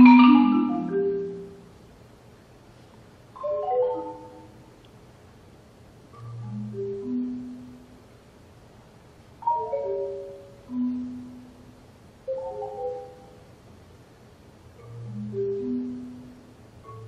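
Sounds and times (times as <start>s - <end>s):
marimba notes: 0.0s - 1.8s, 3.3s - 4.7s, 6.1s - 8.2s, 9.4s - 13.6s, 14.6s - 17.0s.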